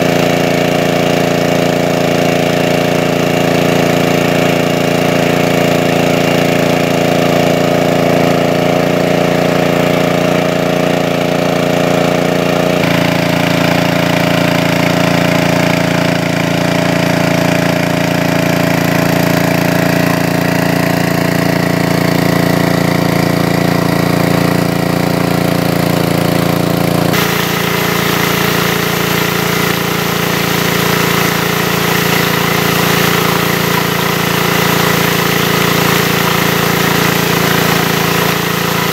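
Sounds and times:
water pump engine running: 0:00.0 - 0:38.9.

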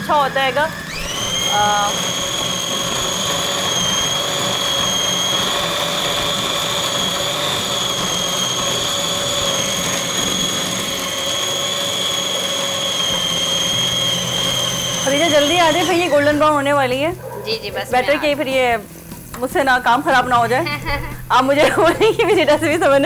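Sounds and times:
blender motor whining: 0:00.0 - 0:17.1.

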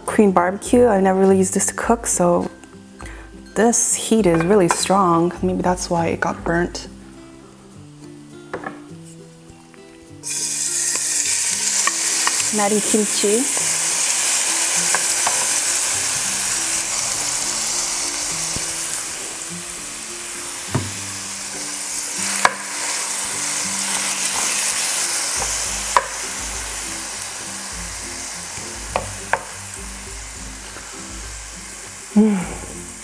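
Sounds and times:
food sizzling in frying pan: 0:01.7 - 0:33.0
wooden spoon knocking on pan: 0:20.7 - 0:21.1, 0:25.4 - 0:26.2, 0:28.6 - 0:29.6.

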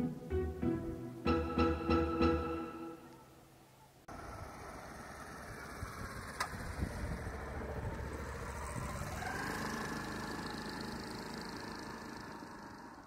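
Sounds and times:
vehicle engine running: 0:04.1 - 0:13.0.

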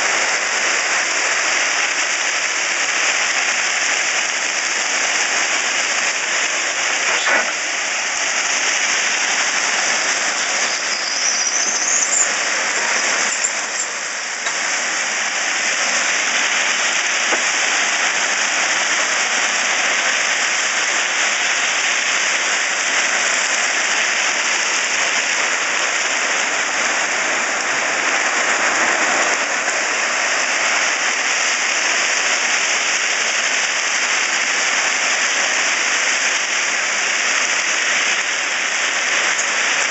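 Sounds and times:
rising squeal: 0:10.6 - 0:12.4.

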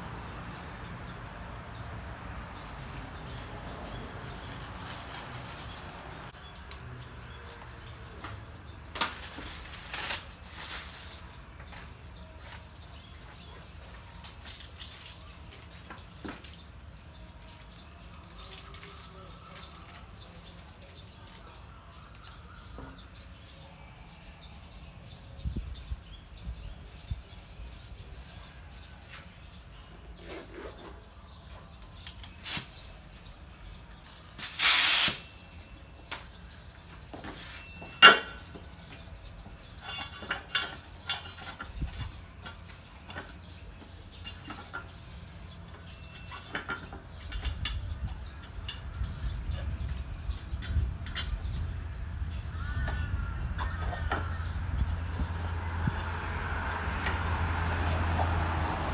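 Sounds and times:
short hissing bursts: 0:34.4 - 0:35.3.

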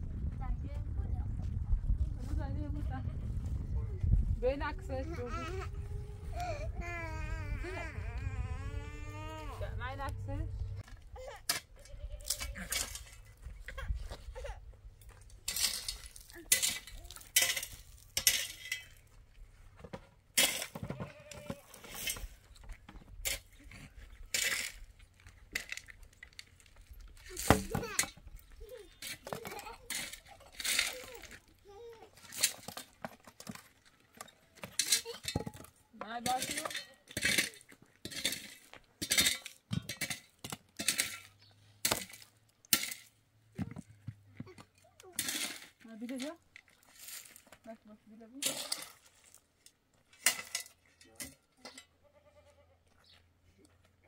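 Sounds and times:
animal bleat: 0:51.9 - 0:52.9.

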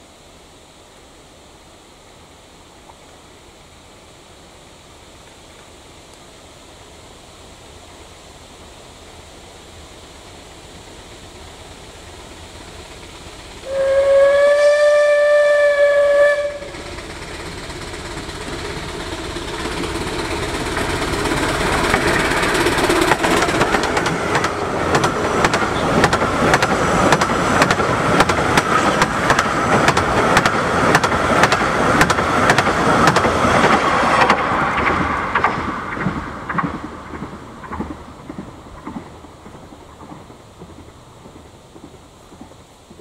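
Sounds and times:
steam locomotive exhaust: 0:04.2 - 0:43.0
steam locomotive whistle: 0:13.6 - 0:16.9.

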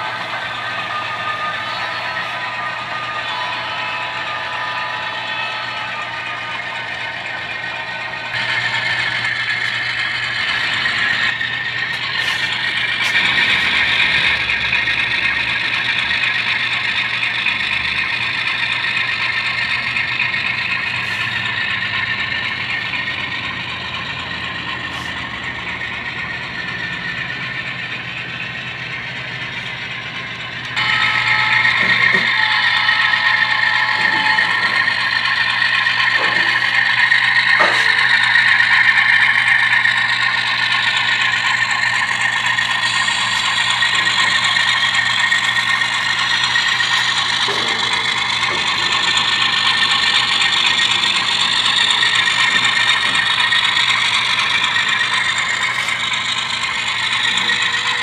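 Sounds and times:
model train whir and clatter: 0:00.0 - 0:58.0
low hum: 0:17.5 - 0:58.0.

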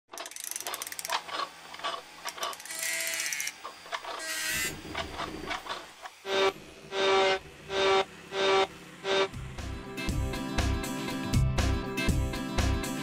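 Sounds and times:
sharp mechanical clicks and clacks: 0:00.1 - 0:04.2, 0:04.8 - 0:06.2.

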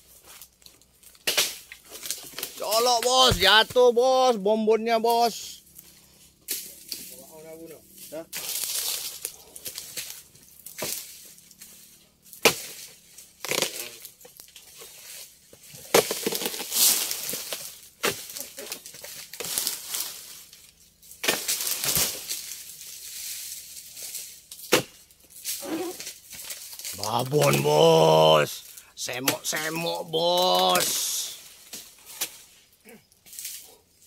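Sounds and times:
dry fronds rustling and crackling: 0:00.0 - 0:34.0
chisel crunching into palm fronds: 0:08.3 - 0:20.5, 0:21.1 - 0:28.4.

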